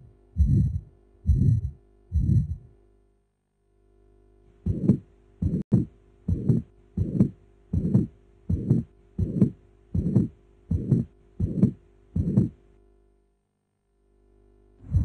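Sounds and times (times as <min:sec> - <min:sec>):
heartbeat with murmur: 0:00.0 - 0:02.7, 0:04.6 - 0:12.6.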